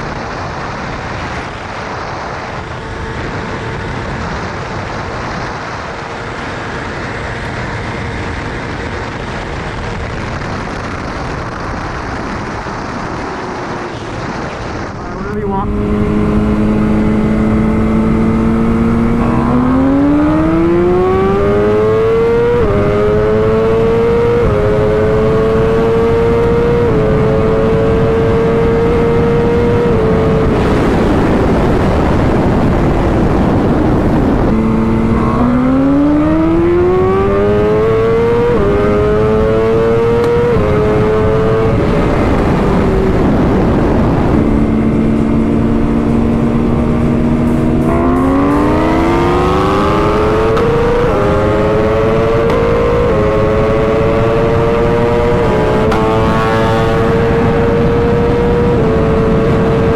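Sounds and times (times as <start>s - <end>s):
motorcycle engine at full throttle: 0.0s - 59.9s
wind rush: 0.0s - 59.9s.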